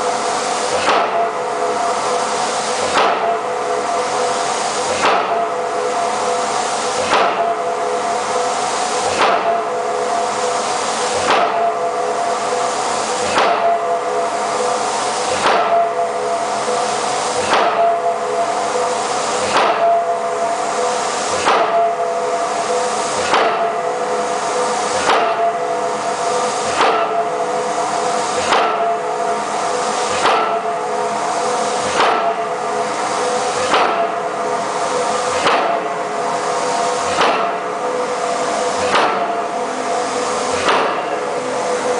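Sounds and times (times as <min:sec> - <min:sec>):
hammer striking steel pile: 0:17.4 - 0:18.0, 0:19.4 - 0:20.0, 0:23.2 - 0:23.7, 0:25.0 - 0:25.5, 0:28.4 - 0:29.0, 0:33.6 - 0:34.2, 0:35.3 - 0:35.9, 0:37.0 - 0:37.6, 0:38.8 - 0:41.3.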